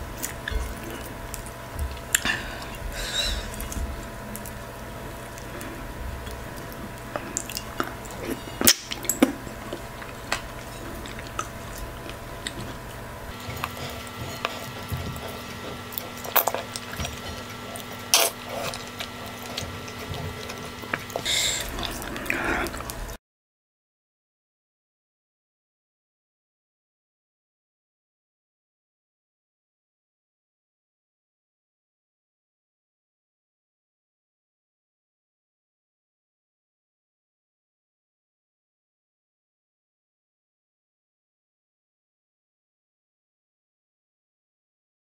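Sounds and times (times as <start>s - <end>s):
steady background hum: 0.0s - 23.2s.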